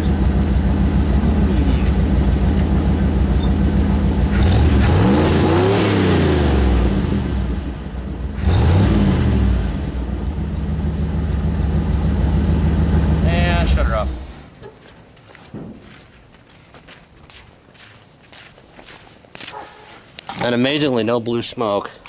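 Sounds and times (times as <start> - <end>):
truck engine idling and revving: 0.0 - 14.6.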